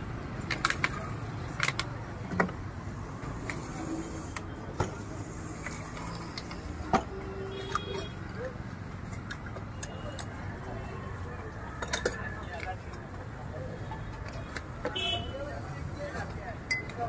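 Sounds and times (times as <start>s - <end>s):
street traffic rumble: 0.0s - 17.0s
glass bottles clinking and knocking: 16.6s - 17.0s.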